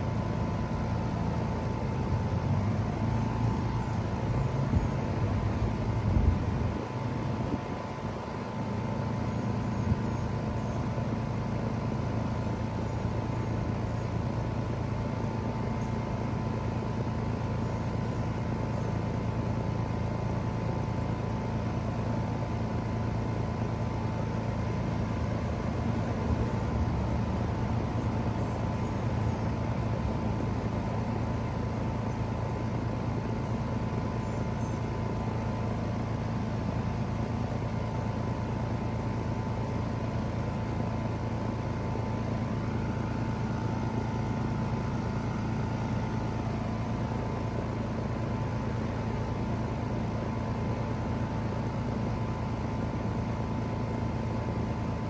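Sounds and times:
compressor low hum: 0.0s - 55.0s
fan airflow noise: 0.0s - 55.0s.

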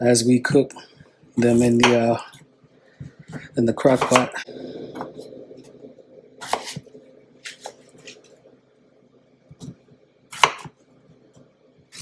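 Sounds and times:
knife chopping on wooden board: 3.9s - 4.4s, 6.4s - 6.8s, 9.6s - 10.8s.

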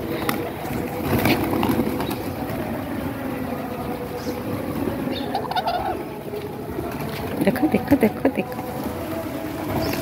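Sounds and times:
pigeon wings flapping: 0.0s - 2.6s
low noise from pigeon flock: 0.0s - 10.0s.

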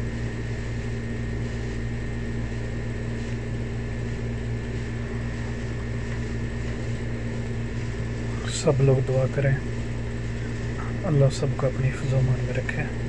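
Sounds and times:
droning hum: 0.0s - 13.0s.

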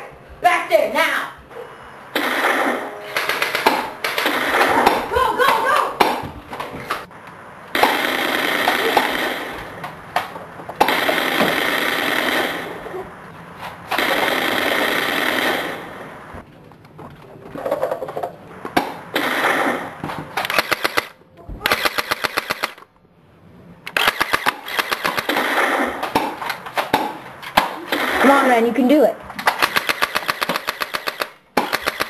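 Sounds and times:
rapid automatic gunfire: 2.2s - 4.8s, 7.8s - 9.8s, 10.8s - 12.8s, 14.0s - 16.0s, 20.5s - 22.8s, 24.0s - 26.0s, 29.5s - 32.0s.

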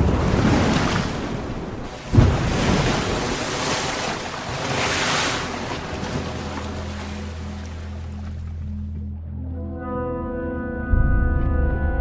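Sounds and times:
heavy low splash: 0.0s - 8.5s
sea water churning and splashing: 0.0s - 8.8s.

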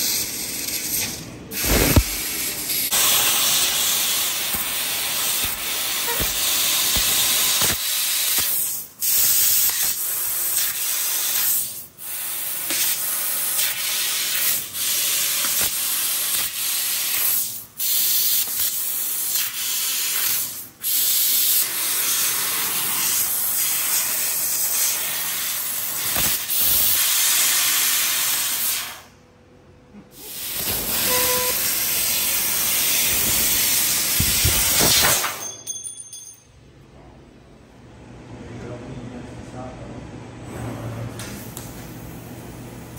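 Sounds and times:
hiss of gas jetting: 0.0s - 29.1s, 30.1s - 35.3s.

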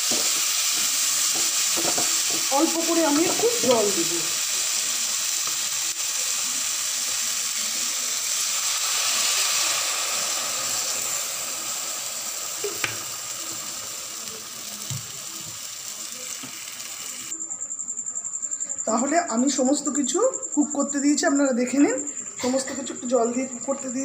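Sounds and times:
vegetables sizzling in pan: 0.0s - 17.3s.

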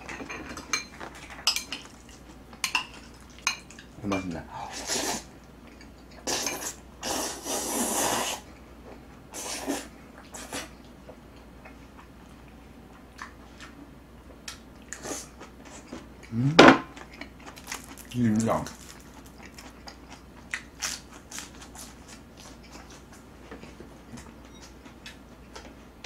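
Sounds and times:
person slurping noodles: 4.7s - 5.3s, 6.3s - 8.4s, 9.4s - 10.7s.

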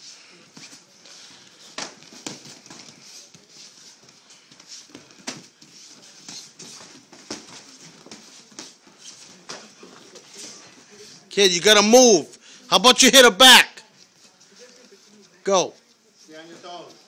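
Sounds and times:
scuffing and rustling: 0.0s - 11.4s.

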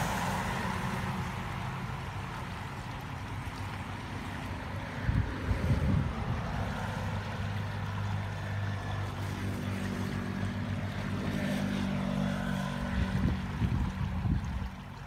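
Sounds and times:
floodwater rushing: 0.0s - 15.0s
vehicle engine hum: 0.0s - 15.0s
wind gusts buffeting microphone: 4.9s - 7.0s, 12.8s - 14.8s.

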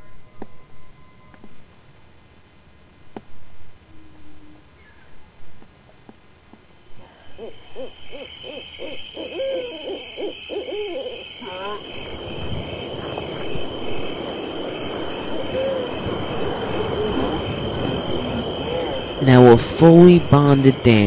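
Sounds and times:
steady hiss: 1.6s - 21.0s
high-pitched whine: 6.9s - 21.0s
short hooting calls: 7.0s - 21.0s.

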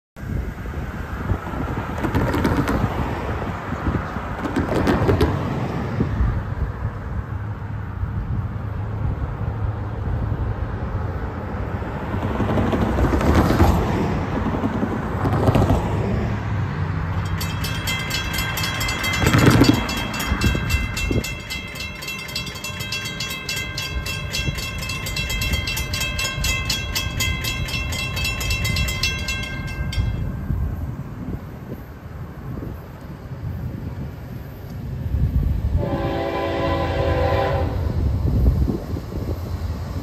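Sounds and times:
cars passing: 0.2s - 40.0s
crossing warning bell ringing: 17.1s - 31.4s.

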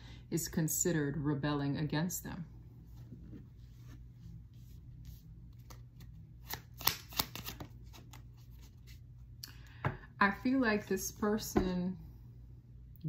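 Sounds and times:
cards rustling: 5.0s - 9.0s
sharp card snaps: 6.4s - 7.7s.

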